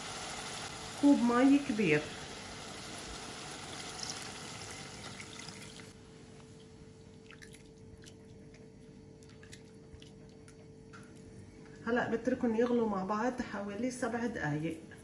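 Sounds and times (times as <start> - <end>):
water sizzling on hot meat: 0.0 - 6.0
liquid splashing: 7.1 - 8.4.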